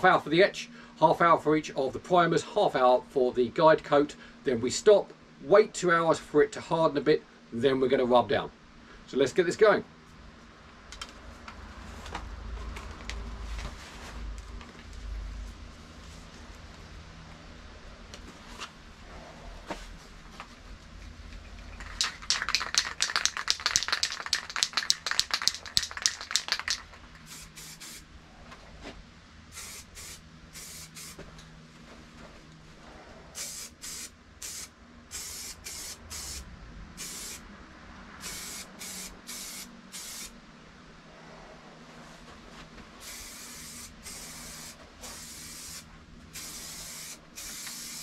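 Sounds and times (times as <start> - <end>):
aerosol can mixing ball rattling: 21.8 - 27.1
spray paint hissing bursts: 22.0 - 28.0, 29.5 - 31.2, 33.4 - 37.4, 38.2 - 40.4, 43.0 - 48.0.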